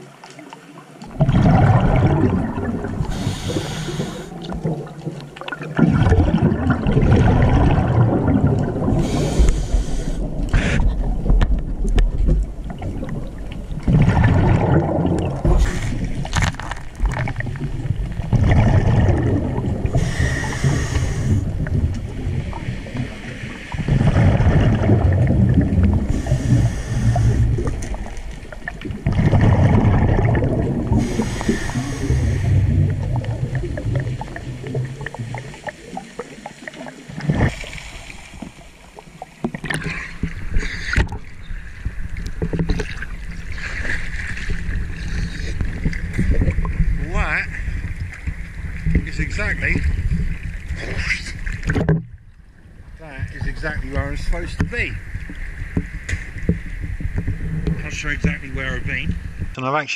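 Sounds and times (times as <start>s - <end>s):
exhaled bubbles rumbling: 0.9s - 59.6s
regulator breath hissing: 3.1s - 4.4s, 9.0s - 10.8s, 20.0s - 21.5s, 26.1s - 27.5s, 31.0s - 32.6s.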